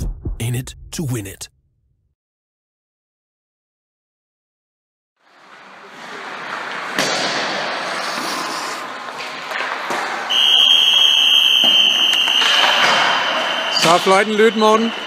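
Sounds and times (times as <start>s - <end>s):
skates hissing on ice: 5.3s - 9.4s
pucks and sticks cracking: 6.3s - 10.3s, 11.6s - 13.4s.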